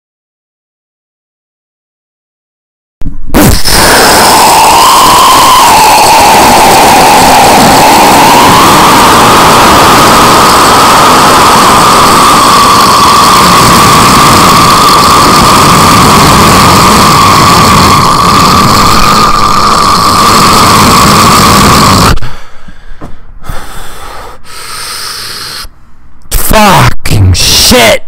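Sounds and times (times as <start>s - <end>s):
man imitating an explosion roar: 3.4s - 18.6s.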